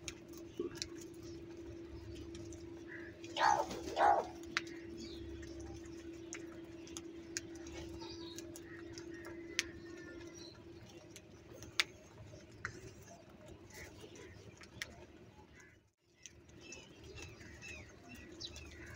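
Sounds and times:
beaks pecking on clay dish: 0:00.0 - 0:18.9
crows cawing: 0:02.8 - 0:04.9.

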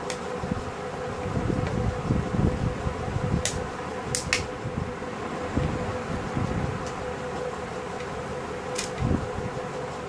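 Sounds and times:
steady hum: 0:00.0 - 0:10.0
sharp plastic clicks: 0:03.4 - 0:04.5.

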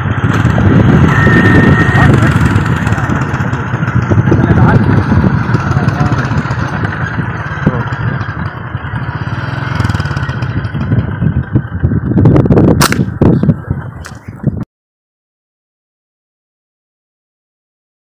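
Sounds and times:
motorcycle engine running: 0:00.0 - 0:14.6
sharp snap: 0:12.8 - 0:13.2.

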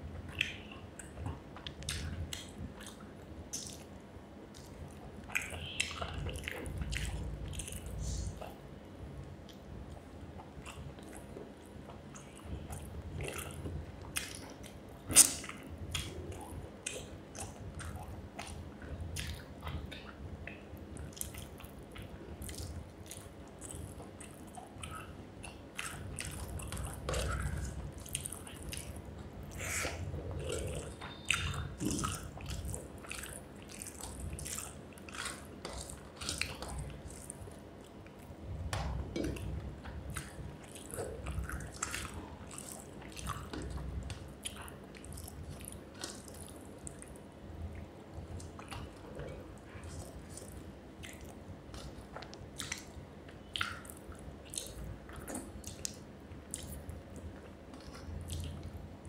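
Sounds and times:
wet chewing: 0:04.5 - 0:08.6, 0:12.1 - 0:58.8.

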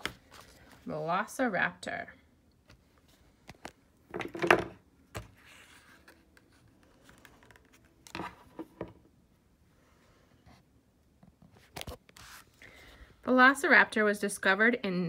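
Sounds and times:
plastic toy and book handling: 0:02.6 - 0:09.0, 0:11.2 - 0:12.6.

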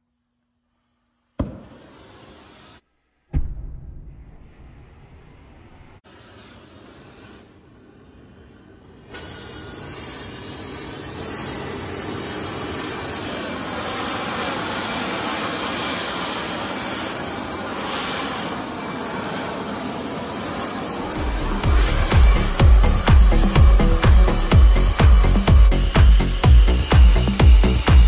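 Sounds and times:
gas torch hissing: 0:01.4 - 0:02.8, 0:08.2 - 0:28.0.

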